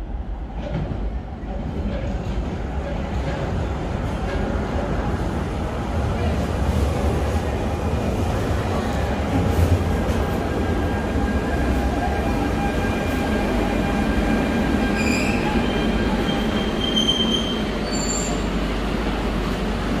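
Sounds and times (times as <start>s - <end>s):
train wheels rumbling on rail: 0.0s - 20.0s
wheel and brake squeals: 14.9s - 18.5s.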